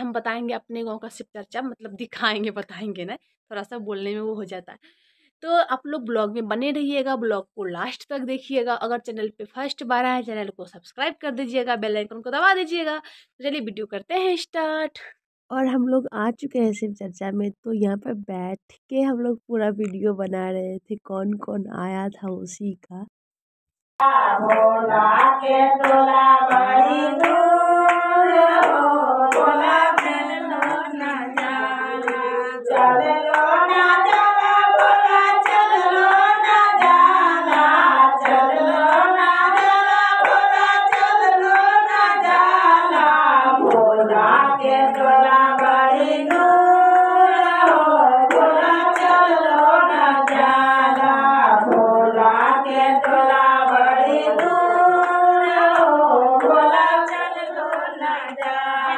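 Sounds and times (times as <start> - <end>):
hand-clapping: 24.0 - 58.7
women singing: 24.0 - 58.9.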